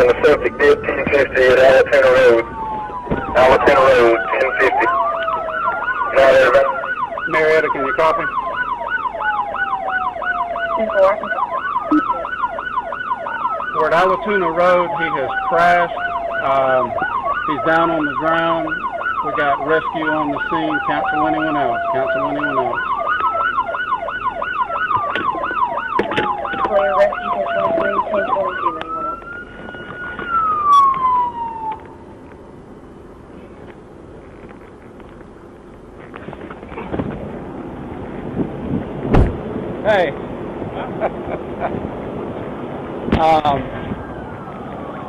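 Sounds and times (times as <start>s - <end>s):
siren yelping: 0.0s - 32.1s, 43.2s - 45.0s
siren wailing: 0.0s - 32.2s, 43.2s - 45.0s.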